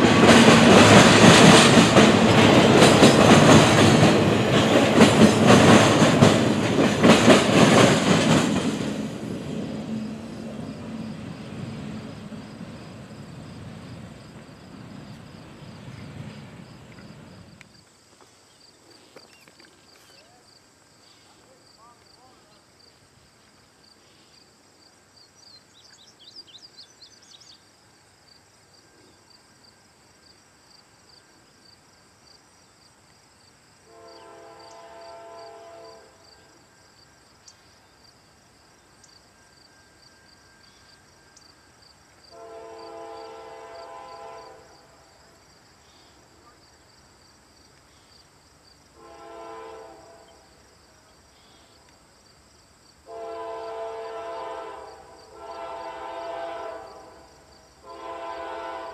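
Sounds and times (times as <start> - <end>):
insects trilling: 7.4 - 58.9
locomotive air horn blasts: 33.8 - 36.2, 42.3 - 45.0, 49.0 - 50.4, 53.1 - 58.9.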